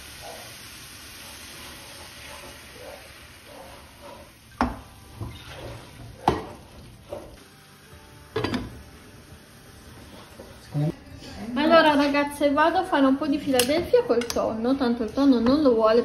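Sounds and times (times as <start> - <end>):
wooden spoon stirring in frying pan: 0.0 - 7.9, 9.2 - 10.7
faint sizzle: 0.0 - 16.0
spoon knocking against pan: 6.2 - 7.2.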